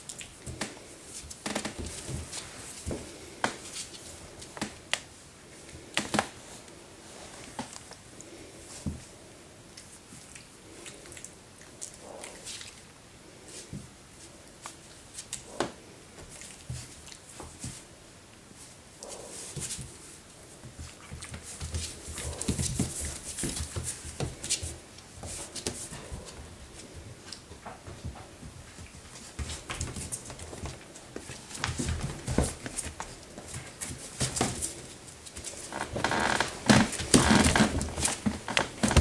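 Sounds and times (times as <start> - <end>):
scuffling and rustling bedding: 0.0 - 5.2, 16.1 - 39.0.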